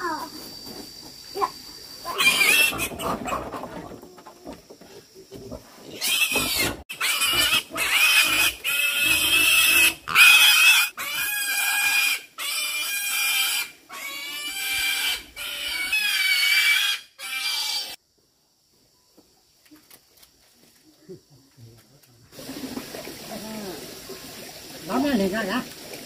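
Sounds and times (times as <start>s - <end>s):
pig squealing: 2.1s - 3.6s, 5.9s - 18.0s.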